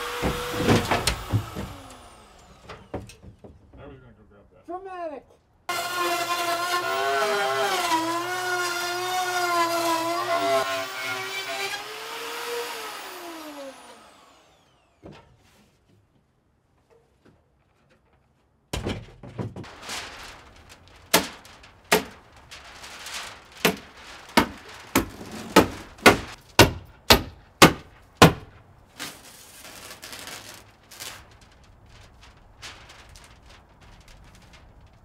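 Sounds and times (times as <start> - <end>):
rustling: 19.5 - 26.6, 27.3 - 35.0.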